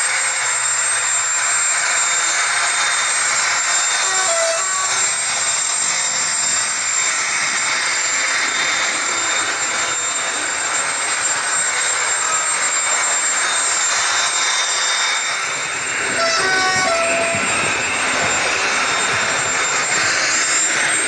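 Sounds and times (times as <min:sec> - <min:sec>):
model train turbine rush: 0:00.0 - 0:21.0
thin high whistle: 0:03.0 - 0:05.8, 0:11.2 - 0:21.0.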